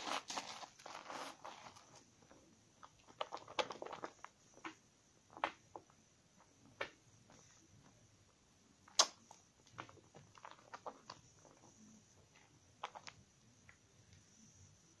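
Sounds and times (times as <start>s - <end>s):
sharp wet smack: 9.0s - 9.2s.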